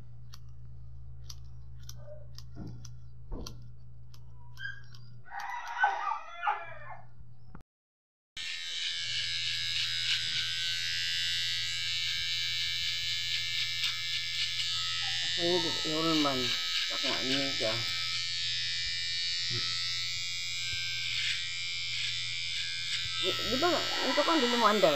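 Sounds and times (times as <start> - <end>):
low hum: 0.0 - 5.3
electric hair clipper buzzing: 0.2 - 4.2, 8.4 - 24.9.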